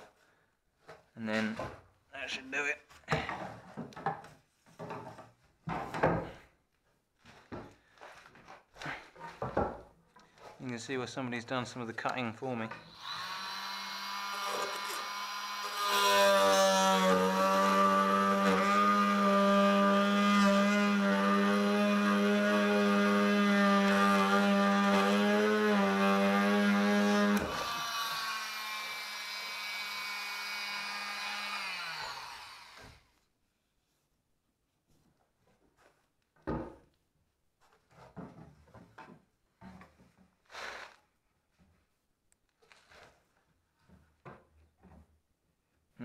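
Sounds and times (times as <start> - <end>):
power tool cutting wood: 12.8 - 33.1.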